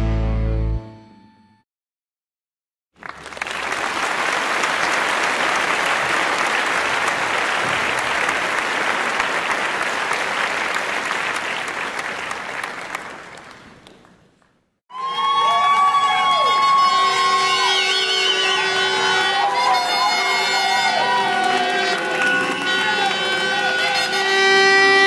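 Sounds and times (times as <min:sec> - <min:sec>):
people cheering: 0:03.0 - 0:13.6, 0:14.9 - 0:25.0
crowd applauding: 0:03.0 - 0:25.0
plastic horn tone: 0:16.8 - 0:25.0.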